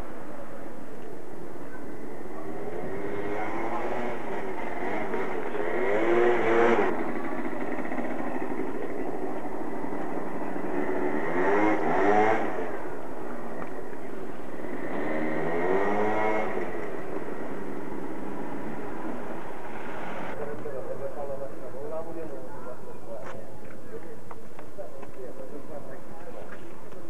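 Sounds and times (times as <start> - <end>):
vehicle engine revving: 2.2 - 20.5
steady background hiss: 8.4 - 22.5.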